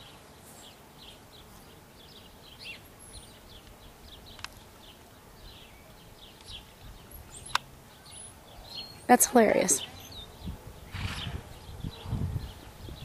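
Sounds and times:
faint outdoor background: 0.0s - 13.0s
small birds chirping: 0.0s - 13.0s
sharp click: 7.5s - 7.7s.

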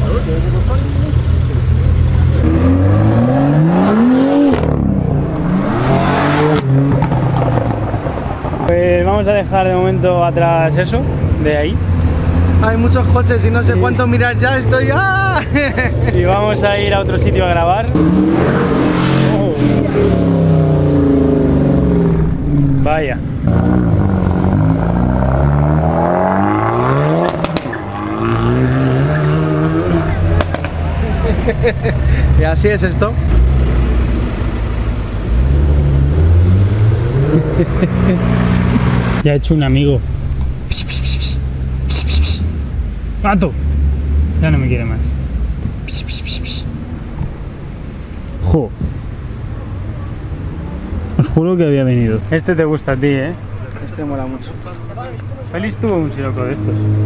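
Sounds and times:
car engine revving: 0.0s - 15.0s, 15.6s - 39.2s, 54.2s - 57.0s.

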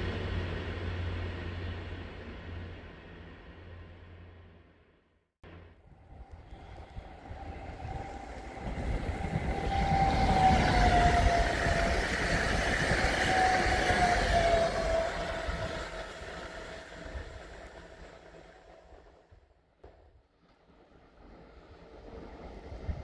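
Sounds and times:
train whine: 0.0s - 20.0s
train wheels rumbling on rail: 5.4s - 20.0s.

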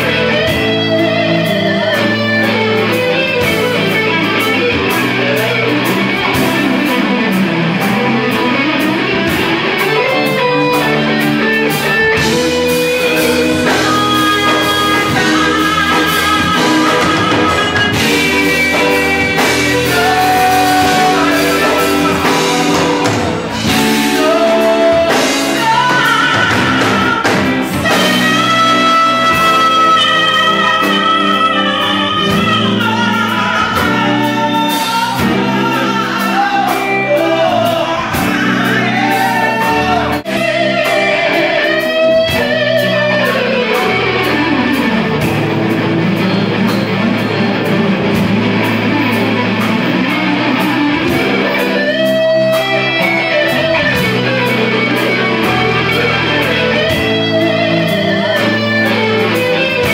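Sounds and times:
bass guitar: 0.0s - 59.9s
drums: 0.0s - 59.9s
electric guitar: 0.0s - 59.9s
person singing: 0.0s - 59.9s.

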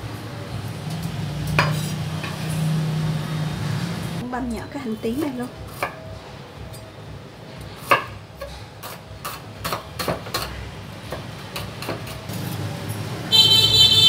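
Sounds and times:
high-pitched horn blare: 13.3s - 14.0s.

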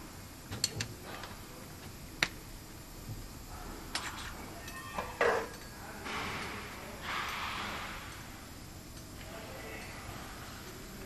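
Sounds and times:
metallic clicks and taps: 0.5s - 0.9s
air hiss: 6.0s - 8.6s.

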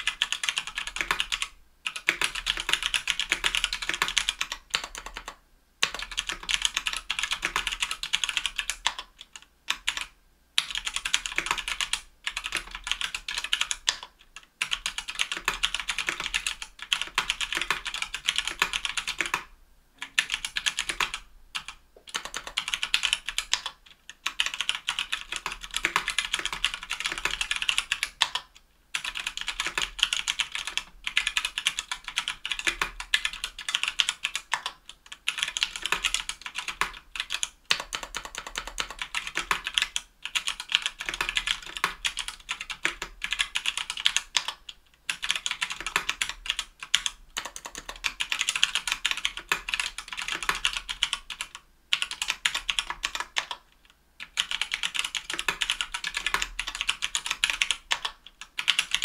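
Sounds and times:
fast keyboard typing: 0.0s - 59.0s.

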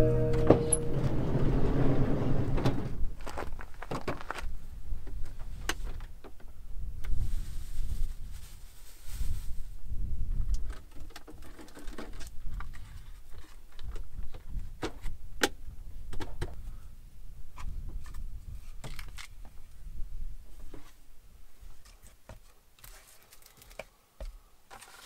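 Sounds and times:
low rumble: 0.0s - 3.2s
plastic bag rustling: 7.2s - 9.7s.

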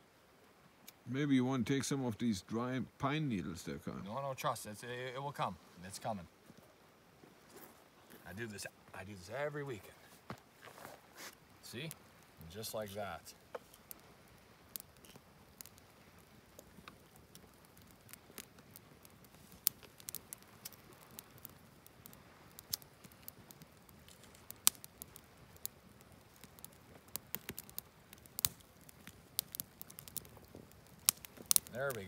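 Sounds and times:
campfire crackling: 0.0s - 32.0s
sharp fire pops: 11.3s - 32.0s.

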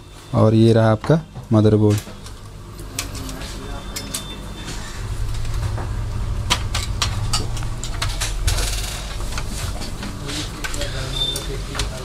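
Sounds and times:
low steady rumble: 4.4s - 10.8s.

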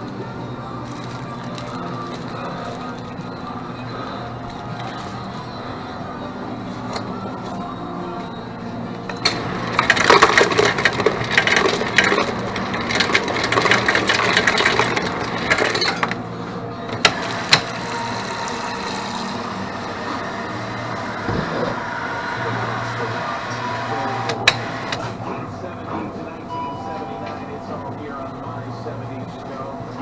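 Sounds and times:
objects clattering together: 9.1s - 16.2s
steady low hum: 16.2s - 30.0s.

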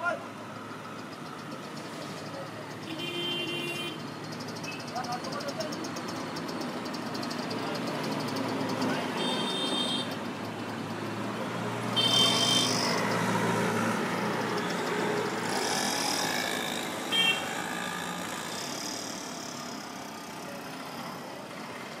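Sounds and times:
auto-rickshaws and motorbikes passing: 0.0s - 22.0s
short high horn beep: 12.0s - 12.9s.

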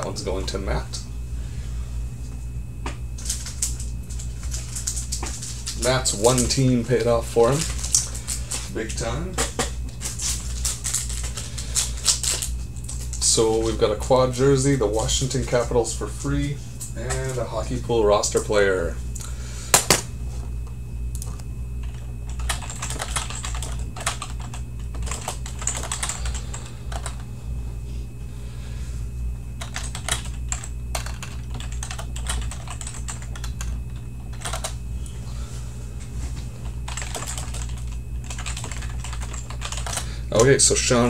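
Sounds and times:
steady low hum: 0.0s - 41.0s
typing on keyboard: 21.8s - 27.2s, 29.6s - 34.8s, 36.9s - 40.0s.

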